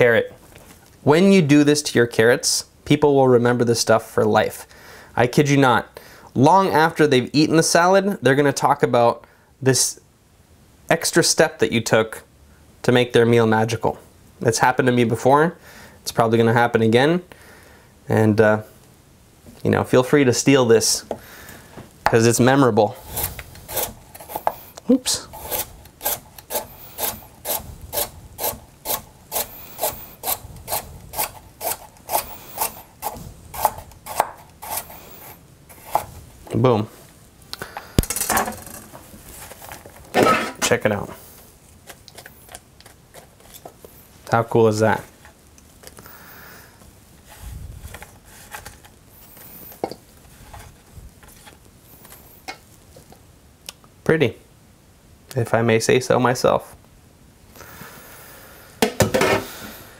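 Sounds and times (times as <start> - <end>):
knife slicing carrot on board: 30.7 - 34.9.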